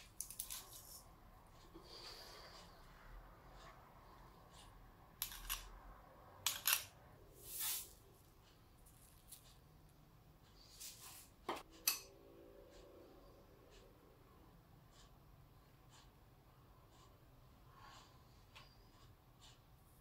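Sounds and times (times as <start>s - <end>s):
knife scraping garlic press: 5.2s - 5.7s.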